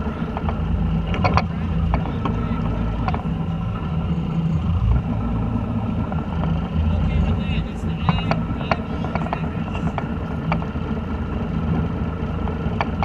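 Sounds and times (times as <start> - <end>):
boat engine idling: 0.0 - 13.0
light clicks and taps: 8.0 - 10.7.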